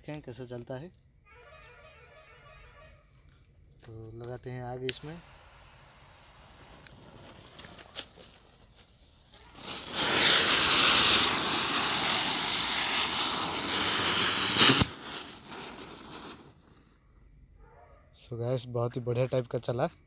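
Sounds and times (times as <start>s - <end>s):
hiss of spinner sparks: 9.4s - 16.6s
sharp pop: 14.5s - 15.4s.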